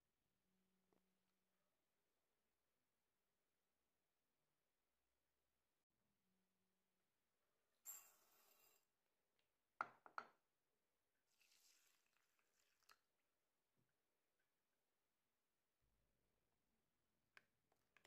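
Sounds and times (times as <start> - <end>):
rice poured into a bowl: 11.2 - 13.1
water poured over rice: 11.2 - 13.2.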